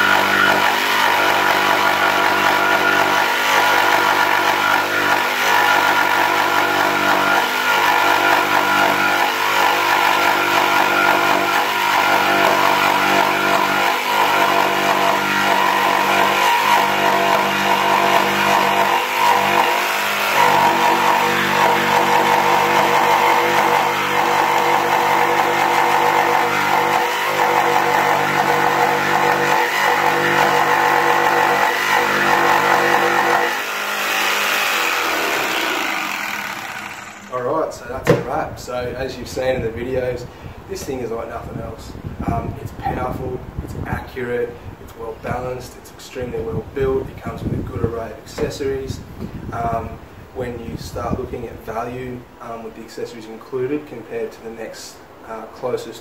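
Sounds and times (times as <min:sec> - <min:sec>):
jigsaw cutting wood: 0:00.0 - 0:37.4.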